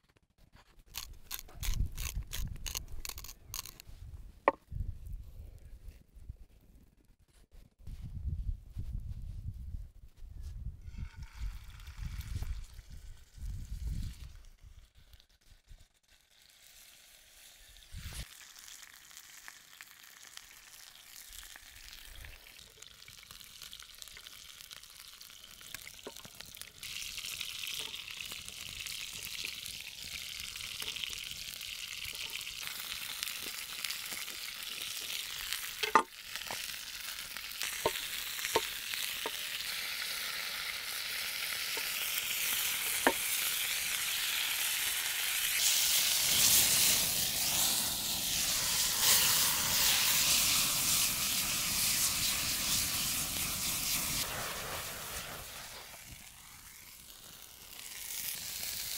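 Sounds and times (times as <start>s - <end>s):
meat sizzling in a pan: 16.2s - 58.9s.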